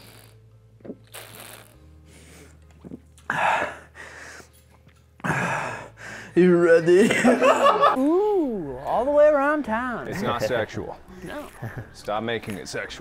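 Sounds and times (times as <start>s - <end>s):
person gulping a drink: 2.7s - 3.3s.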